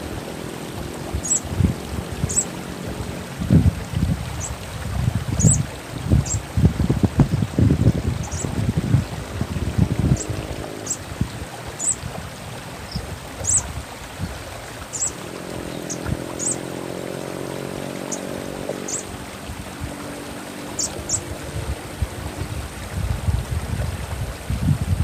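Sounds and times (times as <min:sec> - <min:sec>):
running water: 0:00.0 - 0:25.0
sunbird high chirps: 0:01.2 - 0:01.5, 0:02.2 - 0:02.6, 0:05.4 - 0:05.6, 0:06.2 - 0:06.5, 0:08.2 - 0:08.5, 0:11.8 - 0:12.0, 0:12.9 - 0:13.7, 0:14.9 - 0:16.7, 0:18.0 - 0:19.1, 0:20.8 - 0:21.3.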